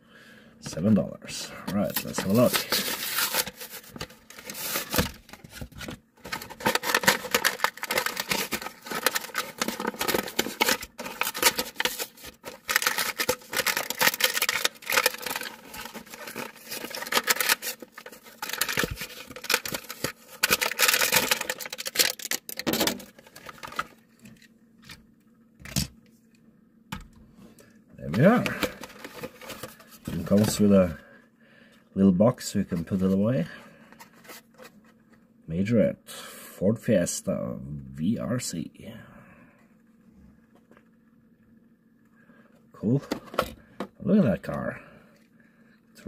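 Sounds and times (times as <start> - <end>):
packaging rustling and crackling: 1.7 - 24.5, 28.1 - 30.7.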